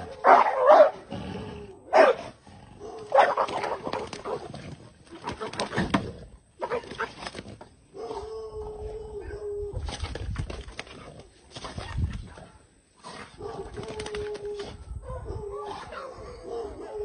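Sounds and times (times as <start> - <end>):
dog growling and barking: 0.0 - 10.0.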